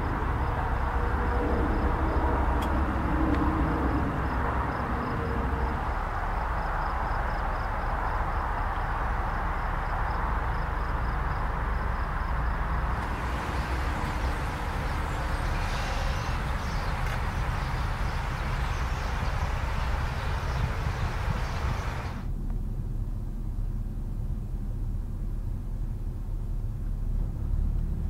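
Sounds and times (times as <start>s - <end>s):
low rumble and hiss: 0.0s - 28.0s
high hiss: 12.9s - 22.2s.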